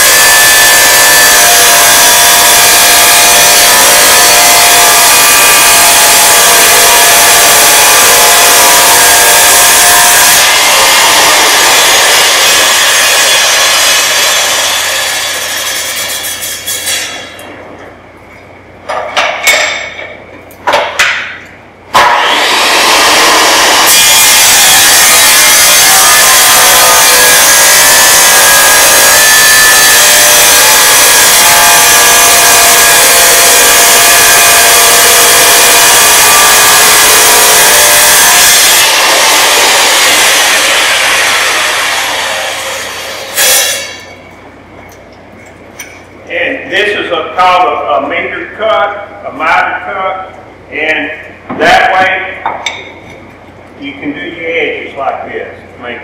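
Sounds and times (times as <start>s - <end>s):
tile saw cutting tile: 0.0s - 17.3s, 21.9s - 44.0s
saw spinning down: 0.0s - 17.4s, 21.9s - 44.2s.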